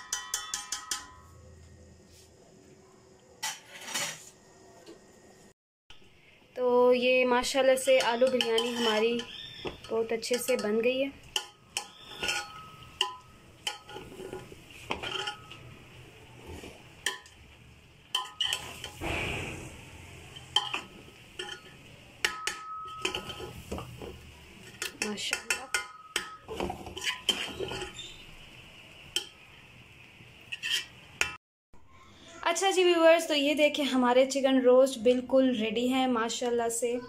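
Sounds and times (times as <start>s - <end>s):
metal spoon clinking on pot: 0.0s - 1.3s, 7.6s - 15.7s, 17.0s - 17.4s, 18.1s - 19.0s, 20.4s - 23.9s, 24.6s - 28.2s.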